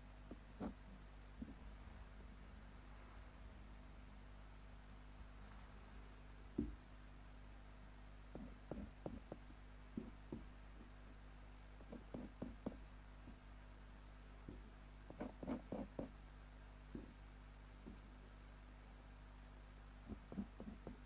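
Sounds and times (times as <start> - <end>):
low electrical hum: 0.0 - 21.0
light knocks and taps: 6.6 - 6.8, 8.3 - 10.9, 16.9 - 17.2, 17.8 - 18.0.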